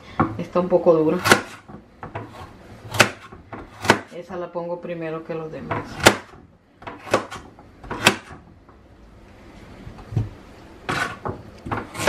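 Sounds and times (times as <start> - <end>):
knife chopping on cutting board: 1.2 - 4.2, 5.7 - 8.4, 10.9 - 12.0.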